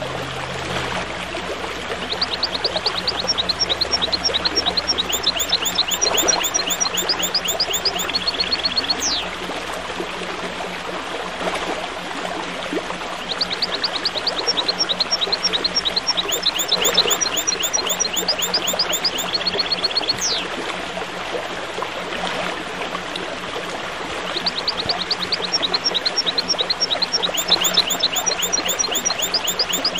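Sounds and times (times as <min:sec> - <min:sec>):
small birds singing: 0:02.0 - 0:09.3, 0:13.3 - 0:20.5, 0:24.4 - 0:29.9
bird rapid high chirps: 0:02.2 - 0:09.3, 0:13.8 - 0:20.5, 0:24.6 - 0:29.9
falling whistle: 0:04.0 - 0:09.3, 0:16.1 - 0:20.4, 0:27.1 - 0:29.9.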